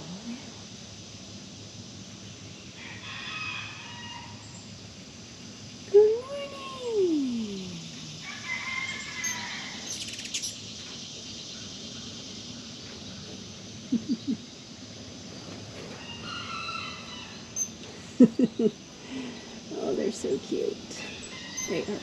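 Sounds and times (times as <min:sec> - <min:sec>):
farm animals calling: 0:21.0 - 0:22.0.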